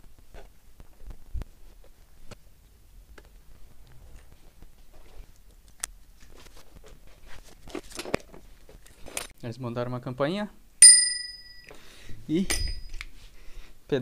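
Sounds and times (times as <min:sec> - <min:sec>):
clicks and knocks handling bicycle: 0:07.6 - 0:09.4.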